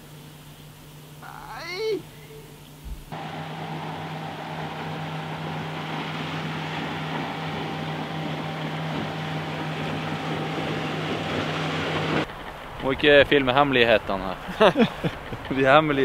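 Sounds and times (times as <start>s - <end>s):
motorboat engine drone: 0.0s - 12.8s
short thump: 2.8s - 3.2s
hull and spray noise: 2.8s - 16.0s.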